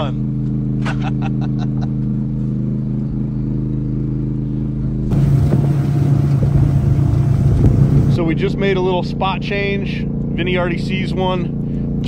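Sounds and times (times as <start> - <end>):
low engine hum: 0.0 - 12.0
boat motor drone: 0.3 - 12.0
rush of wind and water: 5.1 - 8.2.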